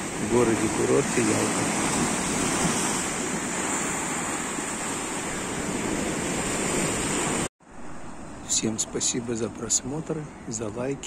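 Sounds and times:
waves washing over rocks: 0:00.0 - 0:07.5.

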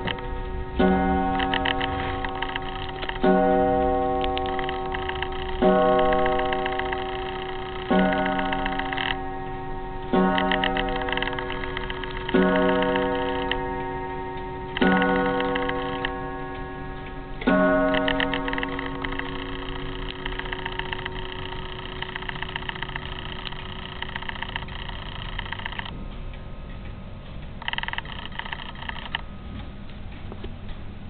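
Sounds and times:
wall clock striking: 0:00.0 - 0:23.9
clock ticking: 0:00.0 - 0:31.0.

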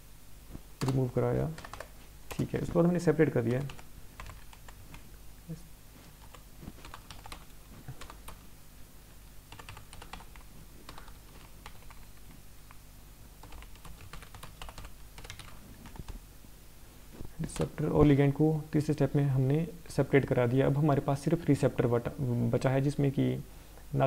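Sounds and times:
computer keyboard typing: 0:00.8 - 0:02.6, 0:03.5 - 0:05.0, 0:06.2 - 0:08.4, 0:09.5 - 0:12.4, 0:13.4 - 0:16.2.

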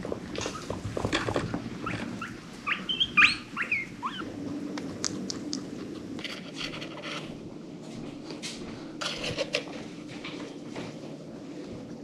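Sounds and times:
guinea pig squeaking: 0:01.8 - 0:04.3.

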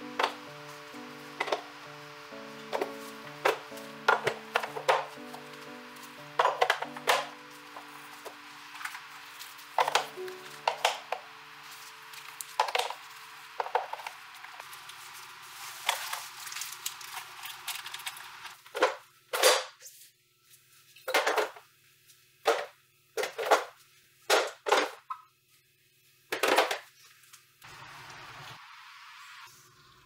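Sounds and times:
plastic fridge bins knocking and rattling: 0:06.4 - 0:07.3.

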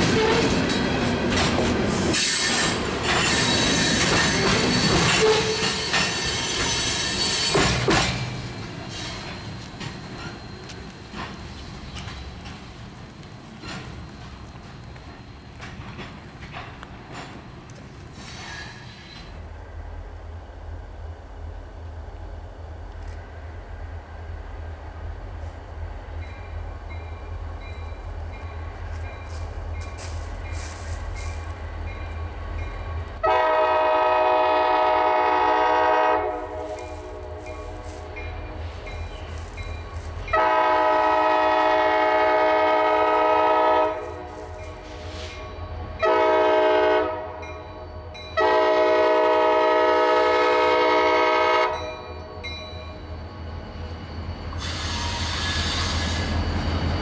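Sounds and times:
train rumble: 0:00.0 - 0:57.0
locomotive air horn: 0:05.0 - 0:05.9, 0:33.2 - 0:38.2, 0:40.3 - 0:47.4, 0:48.4 - 0:52.4.

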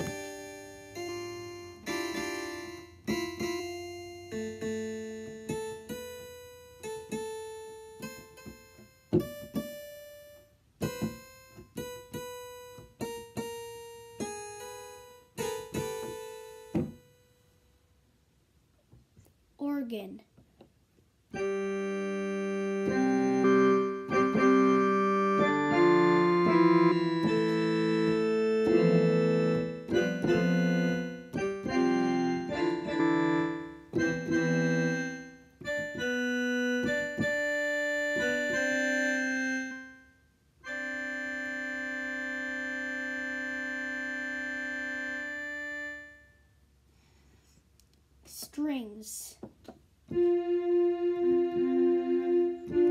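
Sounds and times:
organ chords on digital piano: 0:00.0 - 0:17.6, 0:21.3 - 0:46.6, 0:50.0 - 0:52.9.

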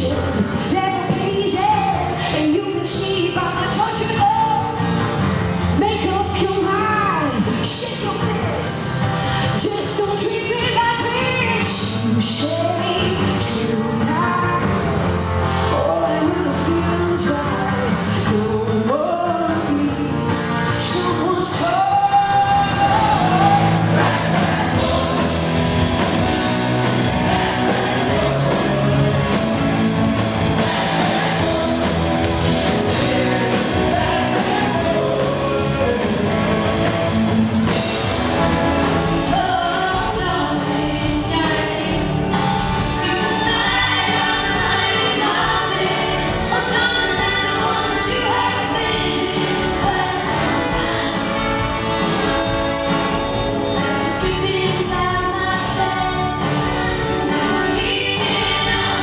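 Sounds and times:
live band with guitar: 0:00.0 - 0:59.0
person singing: 0:09.4 - 0:25.4, 0:30.6 - 0:37.7.

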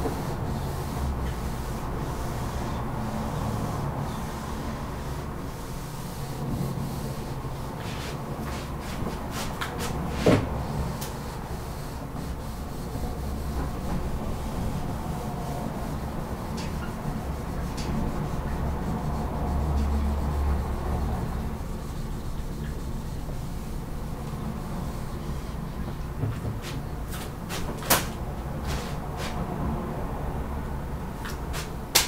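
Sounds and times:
eraser rubbing on whiteboard: 0:00.0 - 0:23.5, 0:28.6 - 0:29.4.

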